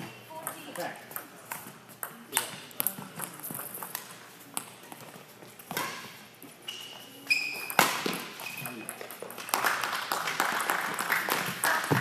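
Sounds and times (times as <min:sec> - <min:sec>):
rackets hitting shuttlecock: 0:00.0 - 0:06.2, 0:07.4 - 0:09.7
shoe squeak on court floor: 0:05.7 - 0:09.0.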